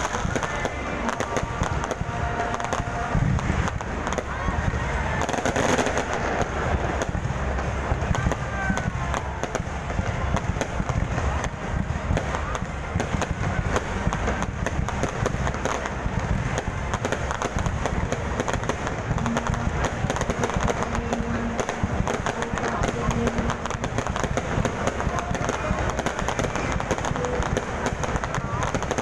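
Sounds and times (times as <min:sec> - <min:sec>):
fireworks bursting: 0:00.0 - 0:29.0.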